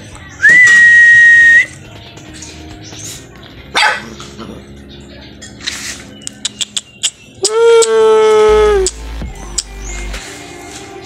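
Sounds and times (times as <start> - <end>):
soft background music: 0.0 - 11.0
high whistle-like tone: 0.4 - 1.7
dog barking: 3.7 - 4.2.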